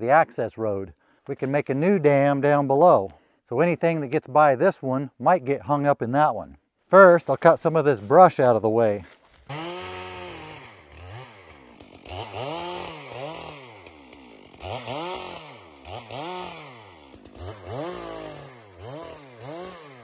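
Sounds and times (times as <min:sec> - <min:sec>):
chainsaw revving: 0:09.5 - 0:20.0.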